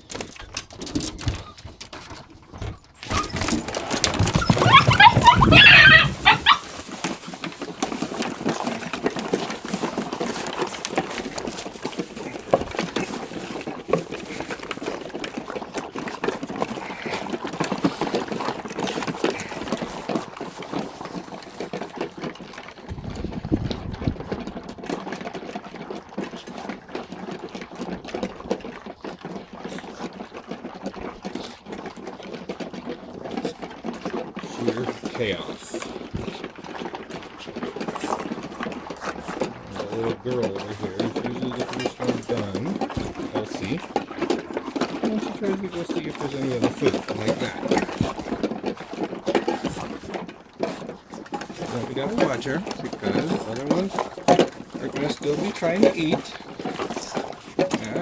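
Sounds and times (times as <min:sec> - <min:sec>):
puppies eating with clicking: 0:00.0 - 0:58.0
puppies yelping and squealing: 0:03.0 - 0:07.7.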